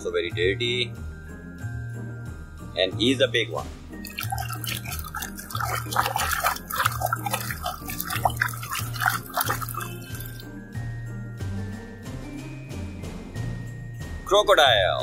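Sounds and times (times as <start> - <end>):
toy splashing in muddy water: 4.0 - 10.5.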